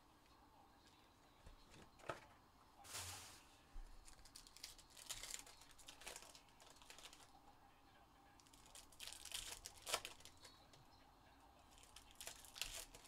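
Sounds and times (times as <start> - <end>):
crinkling rustle: 2.8 - 7.3, 8.4 - 10.6, 11.7 - 13.0.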